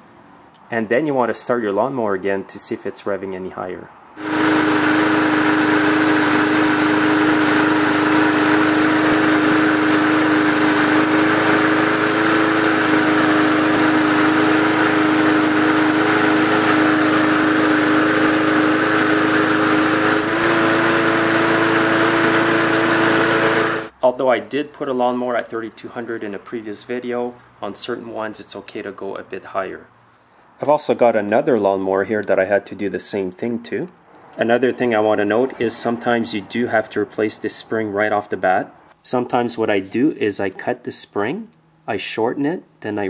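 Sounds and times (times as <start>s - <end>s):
lawnmower engine running: 4.2s - 23.9s.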